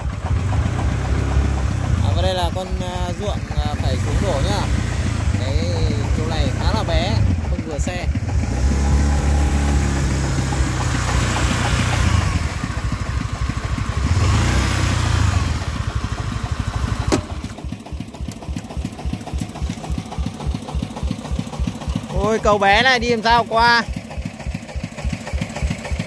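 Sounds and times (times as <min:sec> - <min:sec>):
diesel engine revving and idling: 0:00.0 - 0:26.0
sharp knock: 0:17.1 - 0:17.6.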